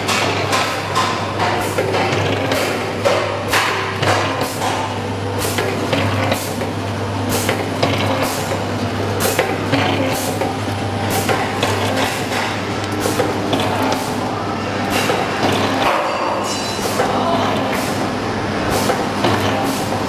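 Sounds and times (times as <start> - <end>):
machine humming: 0.0 - 20.0.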